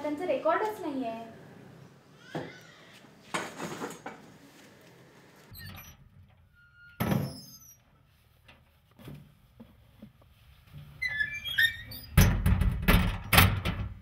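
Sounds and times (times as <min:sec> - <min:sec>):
door squeak: 0:02.2 - 0:02.9, 0:05.5 - 0:07.8, 0:11.0 - 0:12.4.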